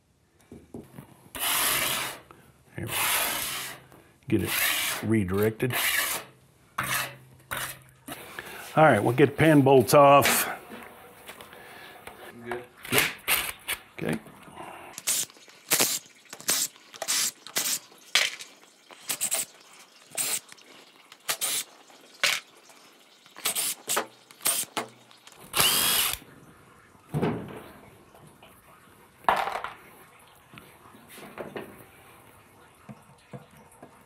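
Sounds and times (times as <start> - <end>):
cordless driver spinning bolts: 25.6 - 26.2.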